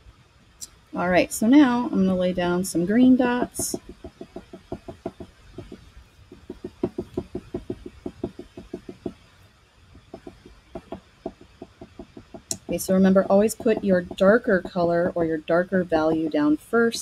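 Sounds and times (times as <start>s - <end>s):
pastel tapping on paper: 3.3s - 9.2s, 10.0s - 16.5s.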